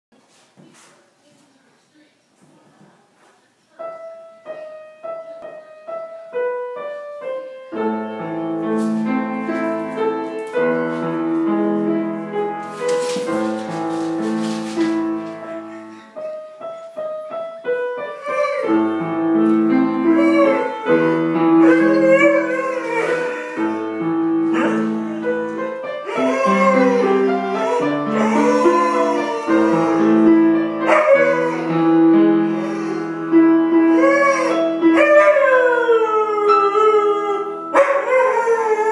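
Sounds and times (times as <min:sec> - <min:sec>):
piano playing slow chords: 0:03.8 - 0:12.8, 0:14.9 - 0:38.9
dog howling: 0:20.0 - 0:23.9, 0:24.5 - 0:25.3, 0:26.0 - 0:30.3, 0:30.9 - 0:31.9, 0:33.8 - 0:38.9.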